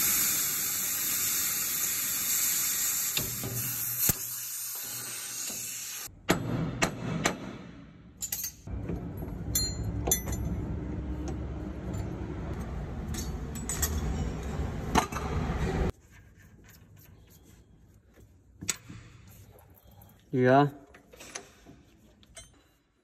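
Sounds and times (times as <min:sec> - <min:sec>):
metal tools clinking: 0:08.2 - 0:10.6, 0:11.8 - 0:14.8.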